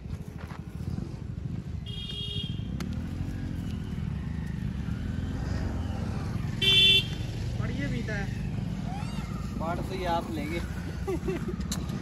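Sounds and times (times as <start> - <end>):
vehicle engine revving: 2.5 - 11.0
high horn beep: 6.6 - 7.2.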